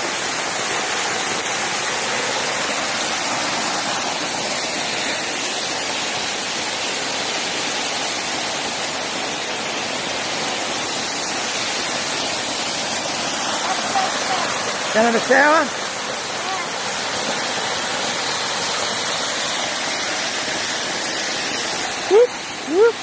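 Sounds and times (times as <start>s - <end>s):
waterfall pouring: 0.0s - 23.0s.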